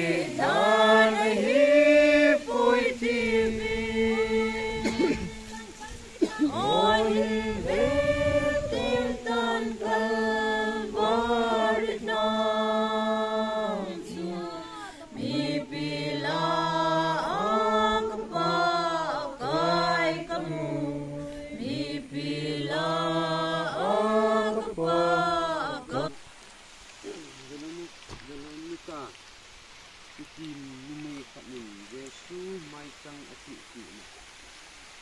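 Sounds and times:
congregation singing a hymn: 0:00.0 - 0:26.2.

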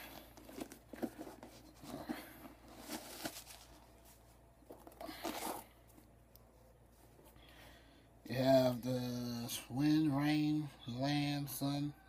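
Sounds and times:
sneaker rustling and scuffing: 0:00.4 - 0:04.4.

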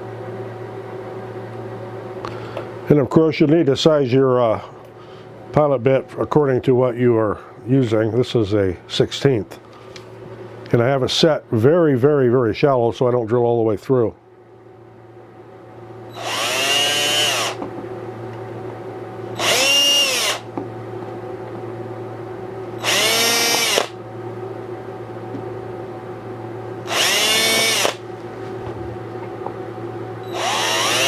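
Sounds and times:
cordless drill drilling into bamboo: 0:16.2 - 0:17.6, 0:19.4 - 0:20.5, 0:22.8 - 0:24.0, 0:26.9 - 0:28.0, 0:30.3 - 0:31.0.

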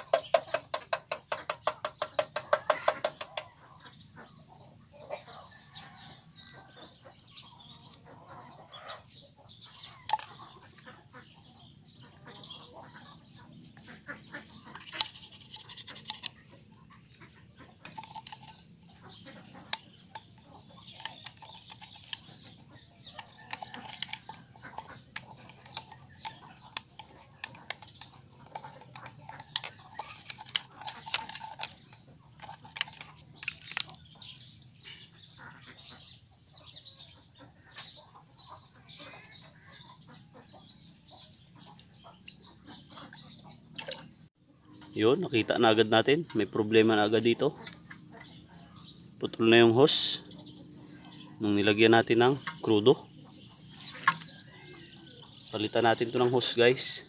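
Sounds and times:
clicks and taps of handling parts: 0:00.0 - 0:03.5
chickens clucking: 0:00.0 - 0:34.4, 0:35.0 - 0:57.0.

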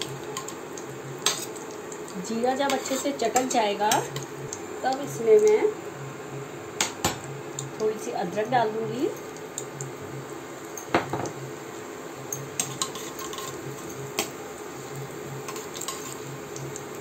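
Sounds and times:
ghee sizzling: 0:00.0 - 0:17.0
steel spoon scraping a pot: 0:02.6 - 0:04.2, 0:12.6 - 0:13.9, 0:15.5 - 0:16.3.

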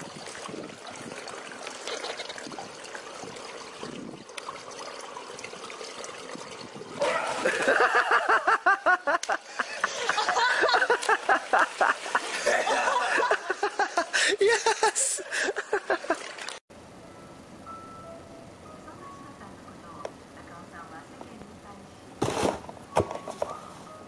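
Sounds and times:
pool water trickling: 0:00.0 - 0:18.6
loud rapid laughter: 0:07.0 - 0:16.2.

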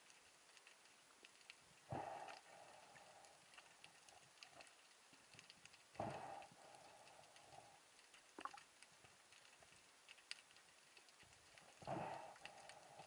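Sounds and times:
soft underwater clicks and crackles: 0:00.0 - 0:13.0.

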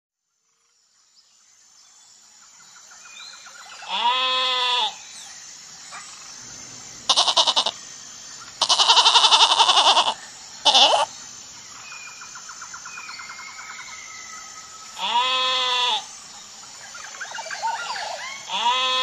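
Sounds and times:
lamb bleating: 0:03.9 - 0:04.9, 0:07.1 - 0:07.7, 0:08.6 - 0:11.1, 0:15.0 - 0:16.0, 0:18.5 - 0:19.0.

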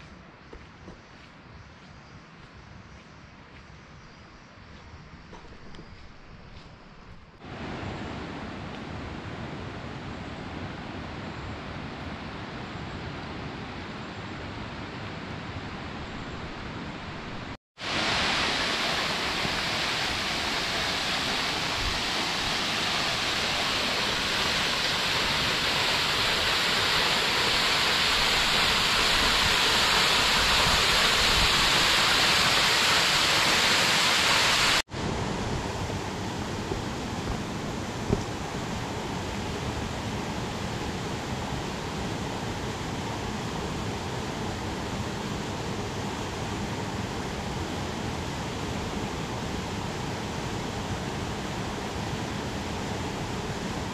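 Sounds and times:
waterfall rushing: 0:17.8 - 0:42.1.

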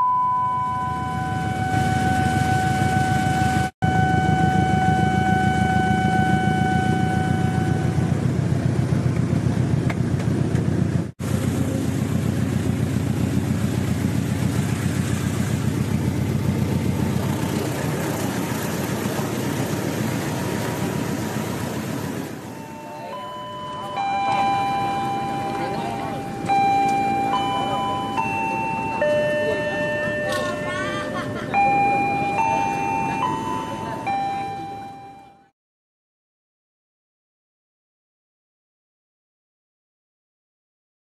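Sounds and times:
steady high tone: 0:00.0 - 0:08.4, 0:16.8 - 0:35.5
rail noise: 0:00.0 - 0:35.3
diesel train engine rumble: 0:00.0 - 0:35.5.

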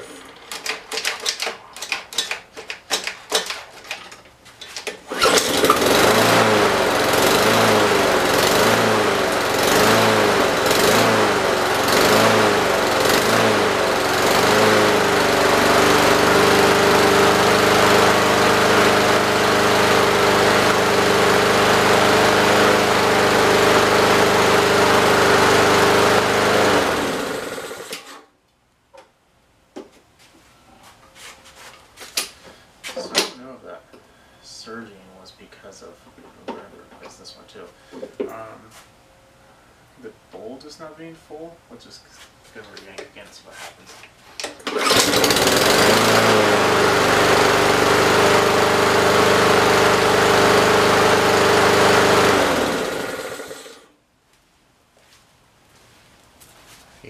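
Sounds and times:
lawn mower engine running: 0:04.6 - 0:28.2, 0:44.4 - 0:53.9.

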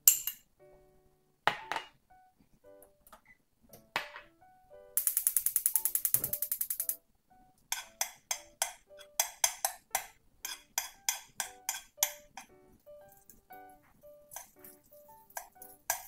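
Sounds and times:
light percussive background tune: 0:05.0 - 0:07.0, 0:10.9 - 0:16.0.

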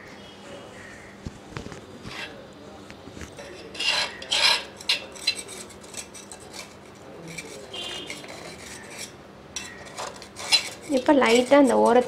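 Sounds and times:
knife scraping steel pan: 0:03.4 - 0:12.0.

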